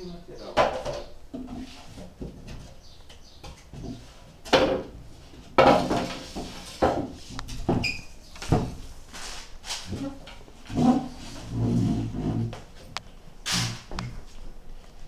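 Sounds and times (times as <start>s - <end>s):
wooden panels knocking on tiled floor: 3.4s - 4.9s, 5.6s - 7.9s.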